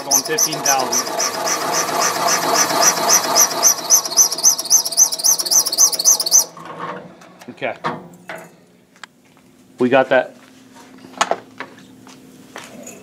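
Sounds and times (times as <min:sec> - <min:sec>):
cutter grinding metal: 0:00.0 - 0:06.5
high chirping squeal: 0:00.0 - 0:06.6.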